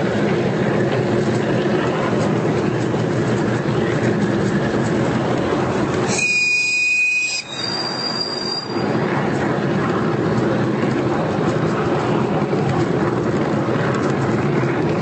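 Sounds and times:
wheels rumbling on rail: 0.0 - 15.0
high-pitched wheel squeal: 6.0 - 9.0.

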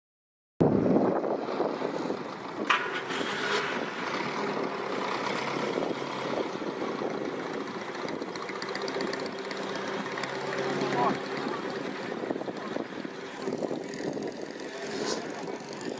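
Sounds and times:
small car engine running: 0.8 - 15.9.

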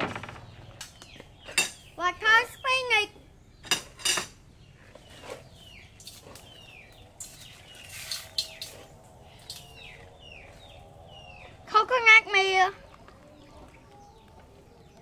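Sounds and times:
sharp knocks: 0.0 - 1.8
falling bird chirps: 0.0 - 15.0.

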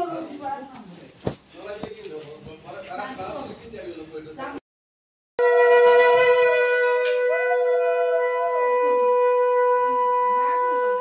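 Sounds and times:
conch shell blown: 5.4 - 11.0.

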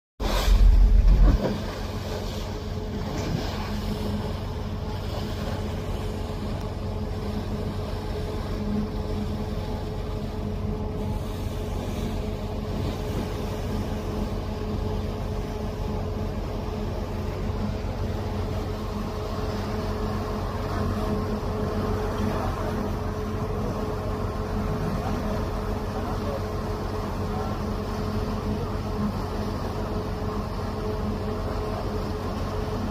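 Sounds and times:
bow wave breaking against hull: 0.2 - 6.4
low rumble: 0.2 - 14.2
boat engine drone: 0.2 - 32.9.

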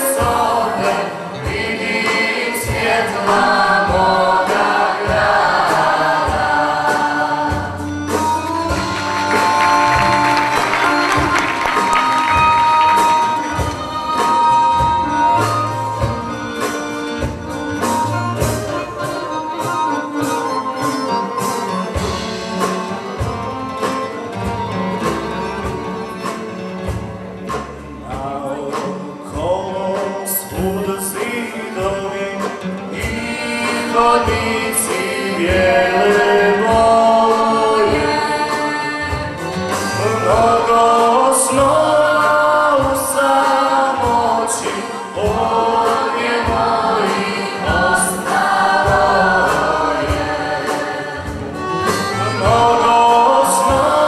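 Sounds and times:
accordion: 0.0 - 54.0
strummed guitars: 0.0 - 54.0
violin: 0.0 - 54.0
man singing into a microphone: 28.0 - 38.9, 39.9 - 45.9, 52.4 - 54.0.

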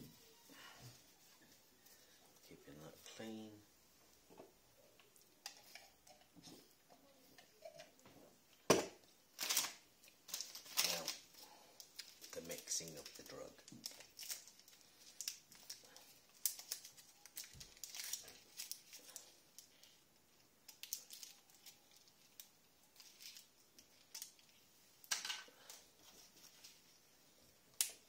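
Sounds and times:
plastic packaging crinkling and clicking: 9.4 - 20.0, 20.6 - 26.8.

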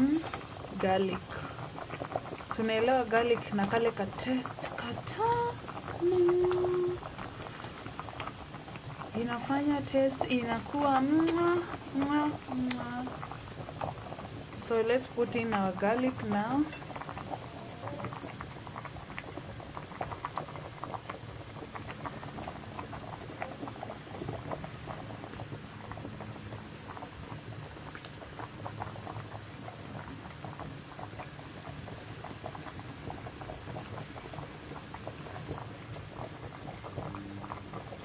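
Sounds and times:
mushrooms sizzling in oil: 0.0 - 26.7.

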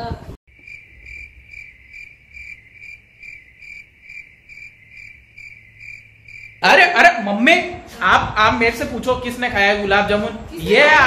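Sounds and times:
crickets chirping: 0.5 - 6.8.

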